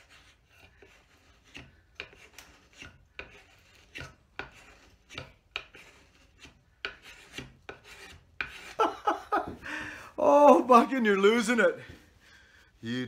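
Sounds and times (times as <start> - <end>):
spokeshave scraping wood: 0.0 - 9.6.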